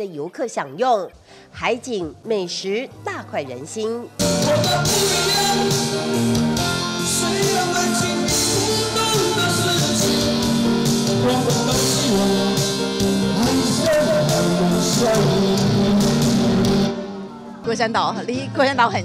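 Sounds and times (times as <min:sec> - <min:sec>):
man singing into microphone: 0:04.2 - 0:16.9
backing music with guitar: 0:04.2 - 0:17.2.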